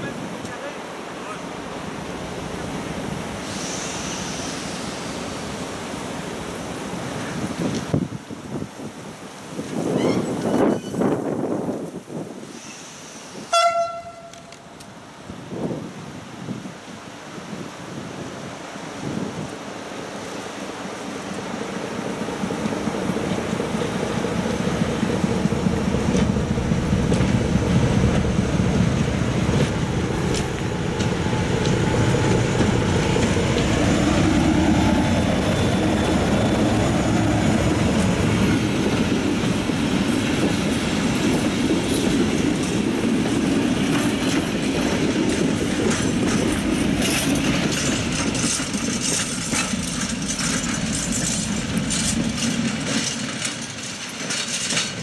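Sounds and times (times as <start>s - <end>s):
wheels clicking over rail joints: 20.3s - 55.0s
locomotive engine rumble: 20.4s - 55.0s.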